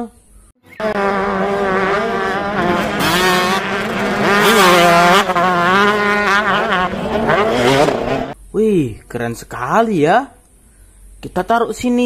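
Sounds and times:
dirt bike engines revving: 0:00.7 - 0:08.4.

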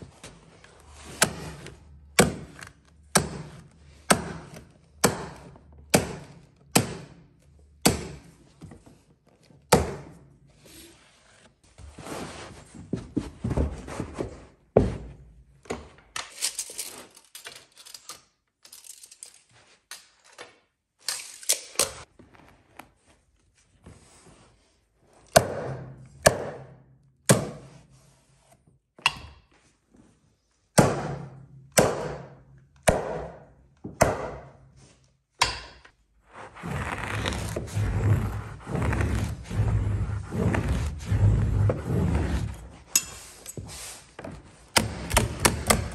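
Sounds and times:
carpet scraping and rubbing: 0:10.6 - 0:15.1, 0:36.2 - 0:45.9
tools thunking and knocking: 0:42.9 - 0:45.9.

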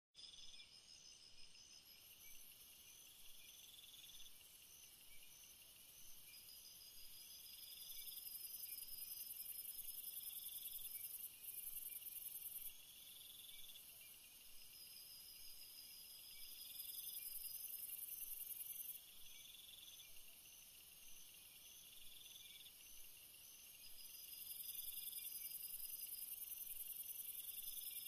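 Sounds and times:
insects chirping: 0:00.2 - 0:28.0
low insect trill: 0:00.2 - 0:28.0.

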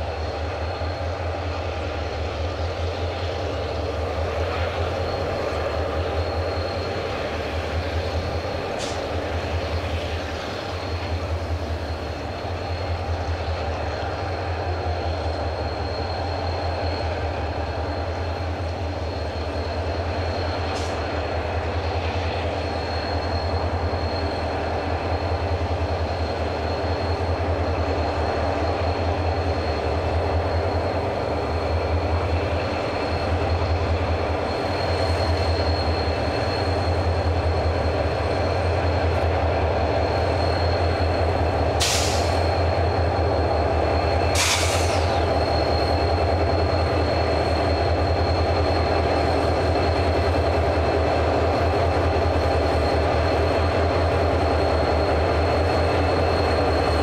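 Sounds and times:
diesel locomotive engine rumble: 0:00.0 - 0:57.0
train passing: 0:00.0 - 0:57.0
short hissing: 0:41.8 - 0:42.6, 0:44.3 - 0:45.2.

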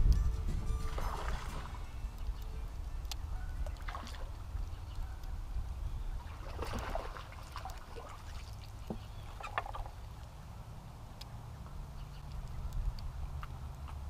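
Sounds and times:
wind buffeting microphone: 0:00.0 - 0:07.3.

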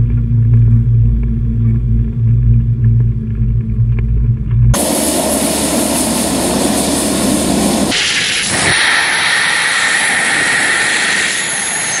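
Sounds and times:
turboprop engines in flight: 0:00.0 - 0:12.0.

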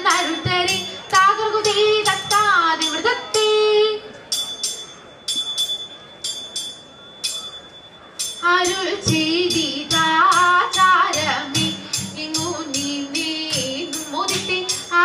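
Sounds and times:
girls singing together: 0:00.0 - 0:03.8, 0:08.4 - 0:15.0
ringing percussion strokes: 0:00.0 - 0:15.0.

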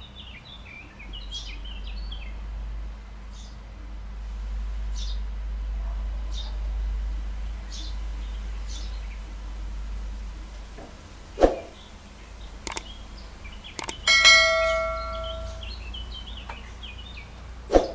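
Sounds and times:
mouse clicks: 0:12.7 - 0:12.9, 0:13.8 - 0:14.1
bell ding: 0:13.8 - 0:15.7.

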